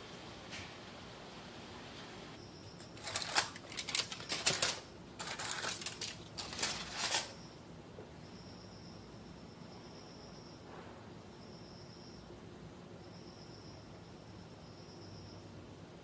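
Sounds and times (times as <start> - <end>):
aluminium foil crinkling: 2.8 - 7.4.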